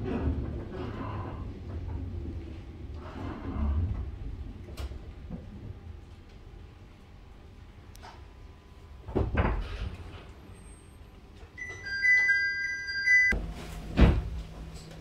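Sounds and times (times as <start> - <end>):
low hum of standing train: 0.0 - 15.0
two-tone train door chime: 11.6 - 13.4
sliding doors thumping shut: 13.4 - 14.4.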